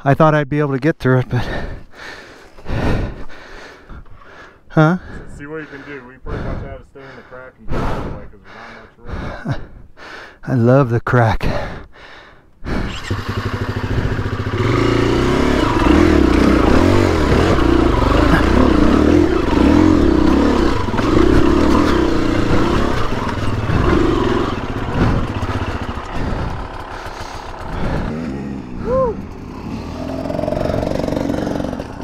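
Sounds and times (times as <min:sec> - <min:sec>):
dirt bike engine revving: 0:12.7 - 0:32.0.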